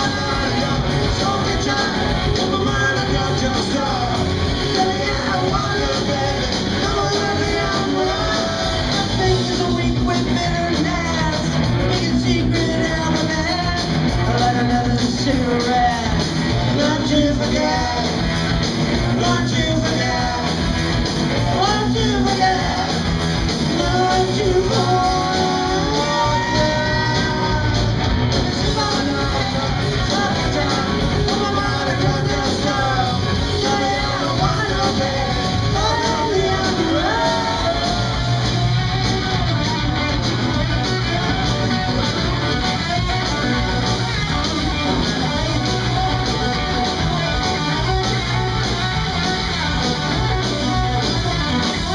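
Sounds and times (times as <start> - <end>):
person singing: 0.0 - 18.3, 19.1 - 20.8, 21.5 - 39.4
live rock band playing: 0.0 - 51.9.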